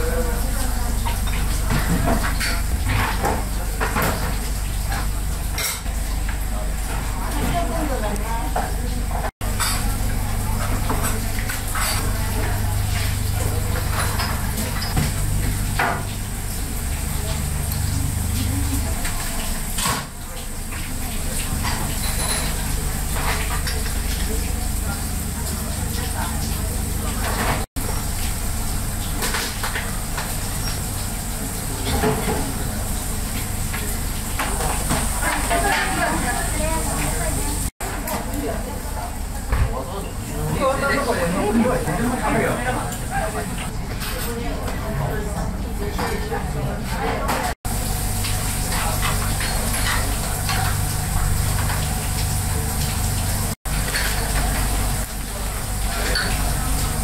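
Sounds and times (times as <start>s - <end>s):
low kitchen hum: 0.0s - 57.0s
dishes and utensils clinking: 21.5s - 24.2s, 55.9s - 56.5s.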